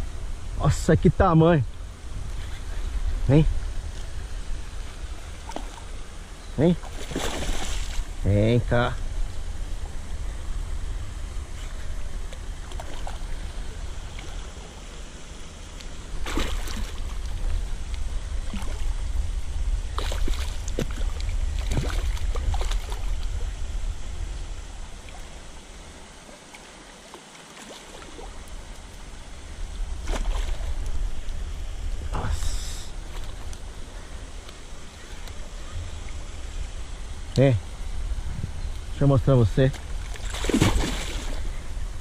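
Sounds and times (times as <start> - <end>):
wind rumbling on microphone: 0.0 - 26.2, 28.2 - 42.0
fish splashing at surface: 6.9 - 8.0, 16.2 - 17.1, 40.2 - 41.4.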